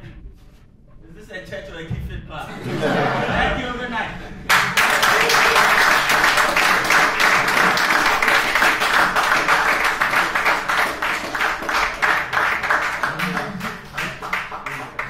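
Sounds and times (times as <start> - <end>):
audience applauding: 4.5 - 15.0.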